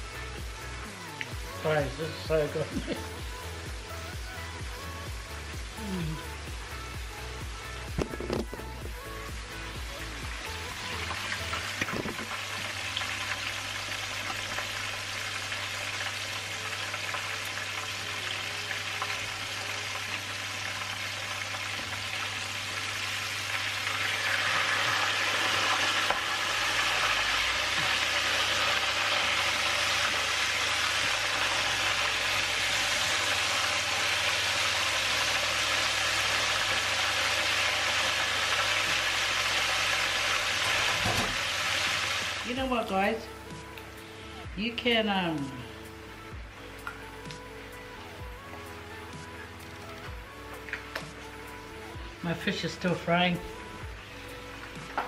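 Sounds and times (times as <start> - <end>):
fish frying in sizzling oil: 0.0 - 44.5.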